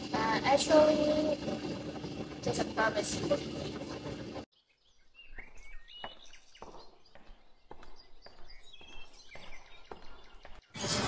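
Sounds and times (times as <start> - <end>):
birds chirping faintly: 4.5 - 10.8
footsteps on tiled stairs: 5.2 - 10.8.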